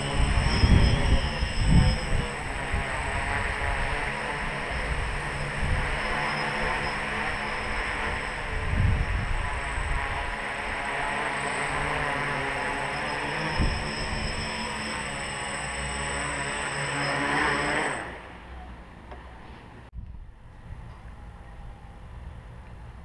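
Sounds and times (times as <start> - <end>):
drone propellers buzzing: 0.0 - 18.8.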